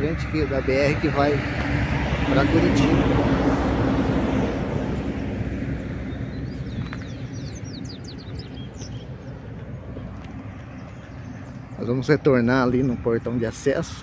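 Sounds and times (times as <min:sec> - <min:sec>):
vehicle passing: 0:00.0 - 0:13.9
bird chirping: 0:06.0 - 0:14.0.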